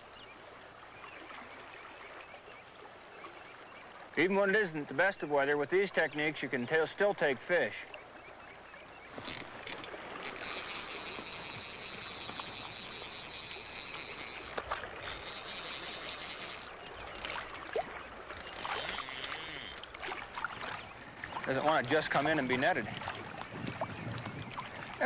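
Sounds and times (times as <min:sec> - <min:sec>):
stream water rushing: 0:09.1 - 0:25.0.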